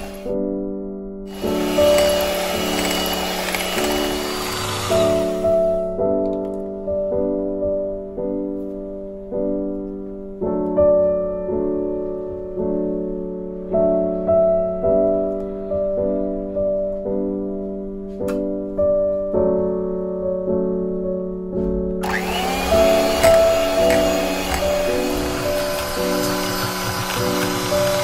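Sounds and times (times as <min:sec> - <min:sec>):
electric hand mixer running: 0:00.0 - 0:00.3, 0:01.3 - 0:05.8, 0:22.0 - 0:28.0.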